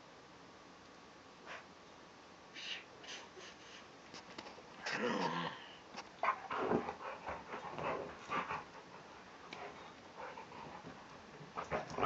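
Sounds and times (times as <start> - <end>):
dog panting: 6.2 - 12.0.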